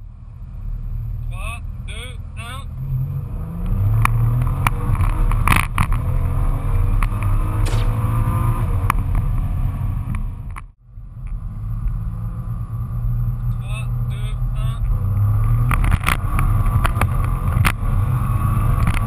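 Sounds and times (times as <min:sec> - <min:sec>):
car engine accelerating hard: 0:00.6 - 0:10.5, 0:11.1 - 0:19.0
sharp exhaust cracks: 0:07.6 - 0:09.4.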